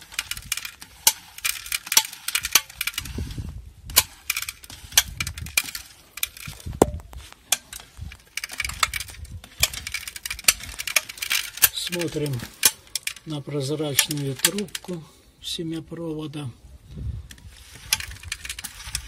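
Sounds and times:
seeder mechanism clicking and rattling: 0.0s - 3.2s, 3.9s - 6.7s, 7.4s - 15.0s, 17.3s - 19.0s.

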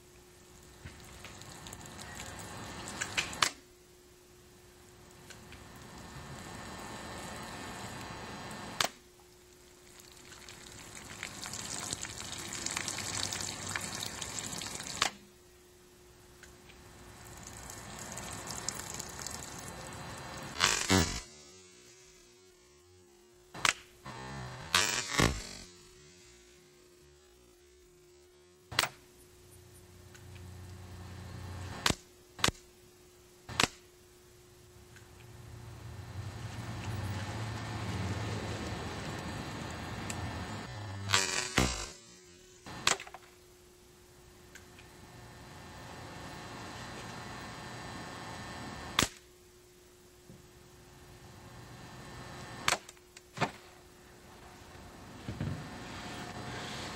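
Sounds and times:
faint steady hum: 0.0s - 56.9s
water splashing and trickling: 0.5s - 3.1s, 9.7s - 15.1s, 17.1s - 20.5s.

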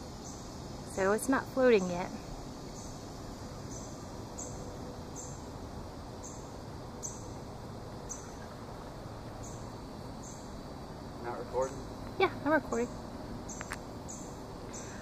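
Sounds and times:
low hiss of open air: 0.0s - 15.0s.

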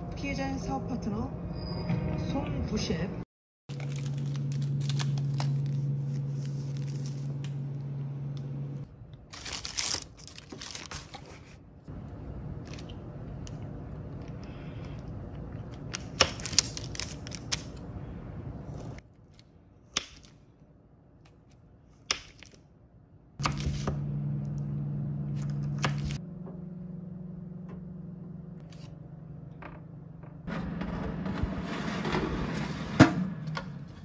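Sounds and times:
low hum: 0.0s - 9.4s, 23.4s - 34.0s.

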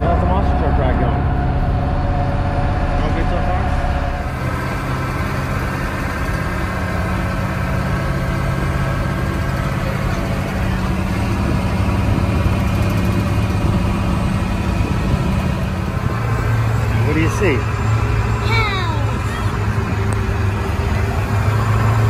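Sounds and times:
truck engine droning: 0.0s - 22.0s.

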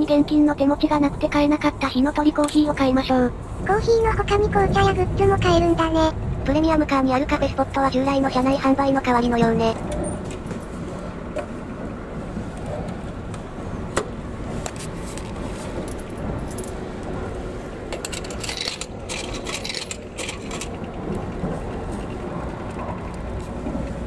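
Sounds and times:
train rumble: 0.0s - 24.0s
coins clinking into machine: 18.0s - 20.7s.

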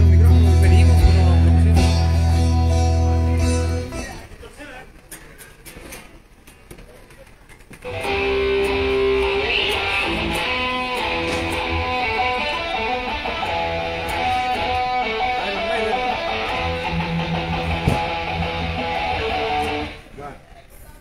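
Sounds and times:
electric guitar through speakers: 0.0s - 20.6s.

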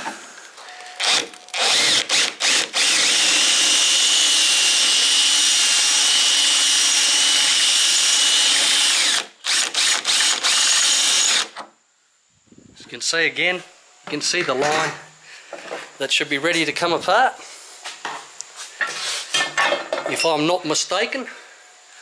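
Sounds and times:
cordless drill boring into steel: 1.0s - 11.6s.

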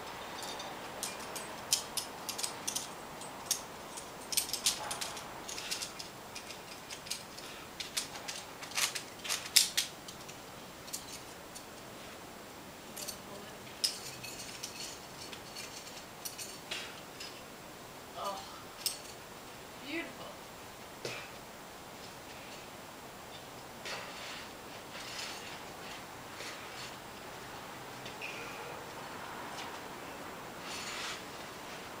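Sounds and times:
climbing gear clinking: 0.0s - 11.8s, 12.9s - 17.5s, 18.8s - 19.2s, 23.3s - 27.0s.

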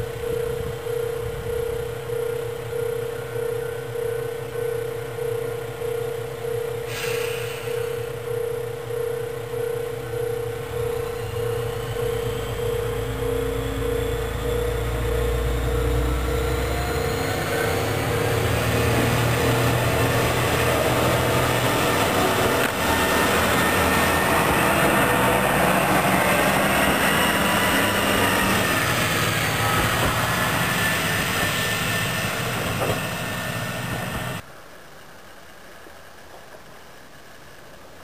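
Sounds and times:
steady hum: 0.0s - 34.4s
wheels on rails: 0.1s - 34.4s
diesel railcar passing: 3.0s - 34.4s.

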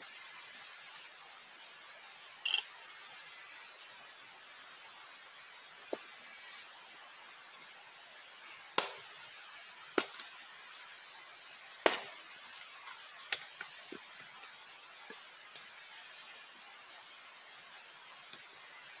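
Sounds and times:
hatchet chopping wood: 8.8s - 9.0s, 10.0s - 10.3s, 11.8s - 12.1s.

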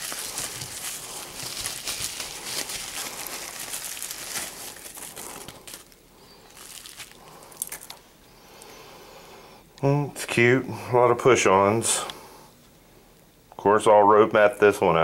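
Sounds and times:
bubble wrap crinkling: 0.0s - 8.2s.

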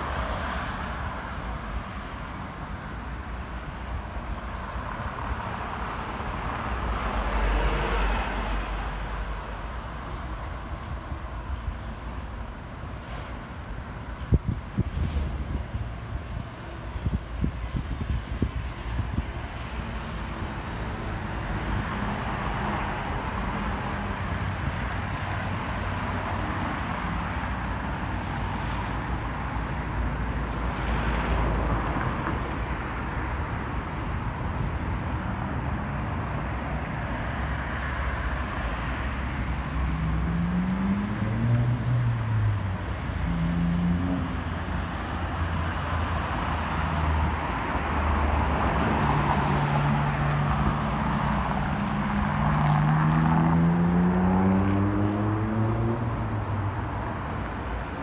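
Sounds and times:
road traffic rumble: 0.0s - 58.0s
vehicles accelerating: 34.2s - 58.0s.

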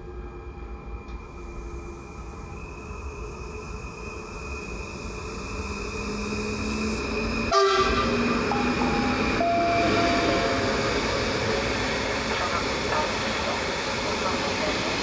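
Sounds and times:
train running past on rails: 0.0s - 15.0s
train whine: 0.0s - 15.0s
train horn blast: 7.5s - 8.2s.

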